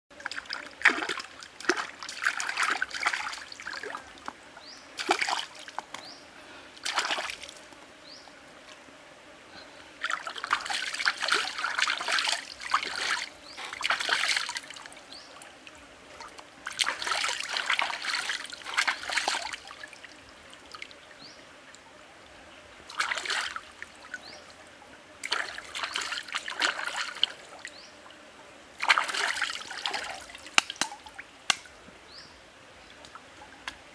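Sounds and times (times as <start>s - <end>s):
stream trickling: 0.1s - 7.8s, 10.0s - 33.9s
water splashing and sloshing: 0.2s - 6.1s, 6.8s - 7.7s, 10.0s - 21.0s, 22.8s - 24.3s, 25.2s - 27.8s, 28.8s - 31.8s.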